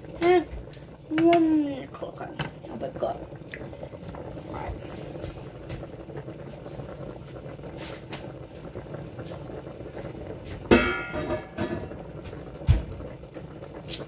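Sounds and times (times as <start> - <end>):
water boiling in pot: 0.0 - 14.0
metallic cookware clang: 10.7 - 11.9.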